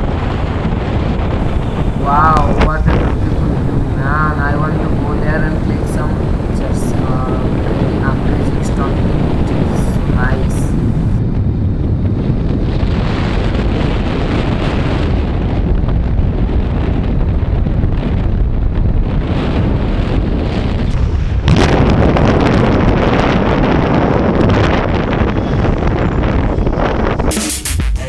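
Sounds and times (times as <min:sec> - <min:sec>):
wind rushing over microphone: 0:00.0 - 0:27.4.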